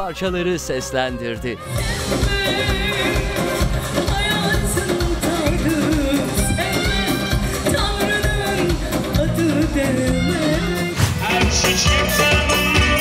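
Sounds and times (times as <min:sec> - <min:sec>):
woman singing with vibrato: 0:01.6 - 0:13.0
band playing a steady beat: 0:10.1 - 0:13.0.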